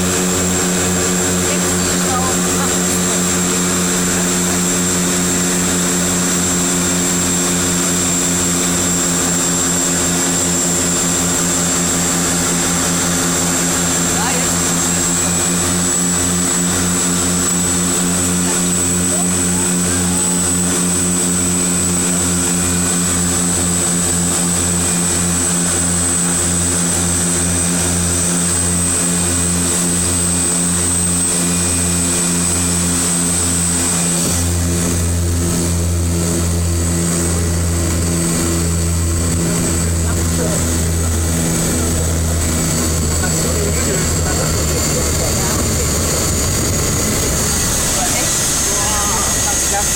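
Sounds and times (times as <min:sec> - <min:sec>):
high turbine whine: 0:00.0 - 0:49.9
propeller drone: 0:00.0 - 0:49.9.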